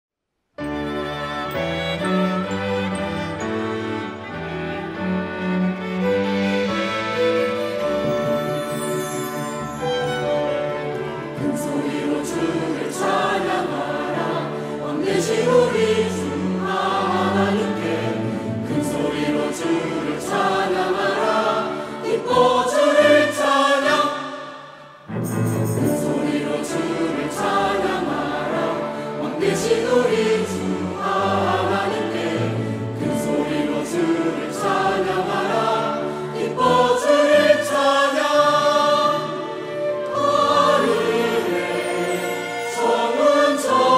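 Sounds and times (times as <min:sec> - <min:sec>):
strings: 0:00.6 - 0:43.9
choir singing: 0:01.2 - 0:43.9
timpani: 0:24.9 - 0:28.7.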